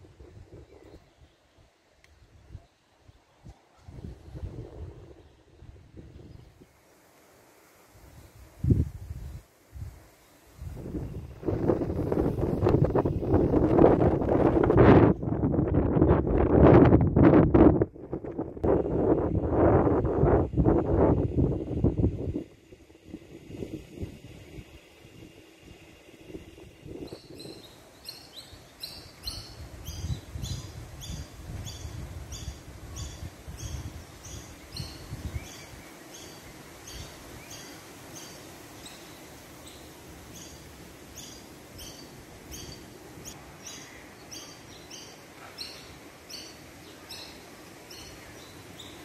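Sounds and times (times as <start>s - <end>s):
wind rumble on microphone: 0.0s - 1.6s, 2.2s - 6.7s, 8.0s - 35.9s
small bird chirping: 27.0s - 49.0s.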